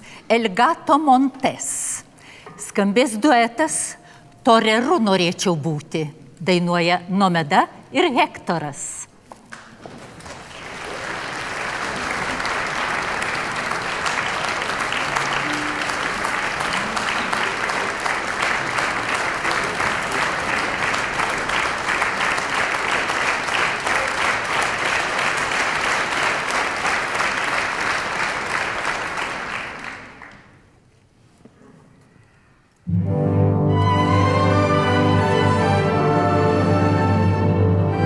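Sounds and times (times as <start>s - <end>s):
audience applauding: 9.5s - 30.7s.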